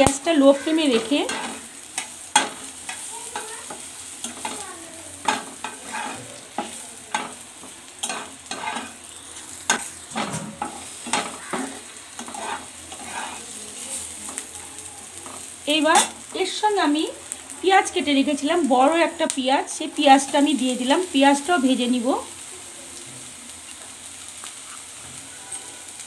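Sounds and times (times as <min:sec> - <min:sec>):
spices sizzling in oil: 0:00.0 - 0:26.0
metal spatula scraping a pan: 0:00.1 - 0:04.6, 0:05.2 - 0:14.4.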